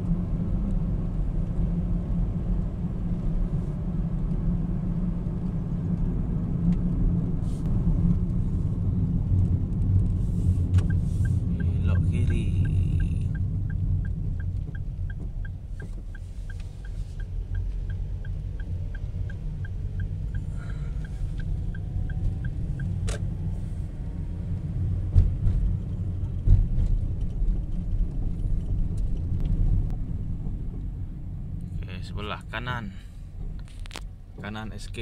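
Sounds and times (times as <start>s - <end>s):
road and engine rumble: 0.0s - 35.0s
turn signal ticking: 9.2s - 26.4s.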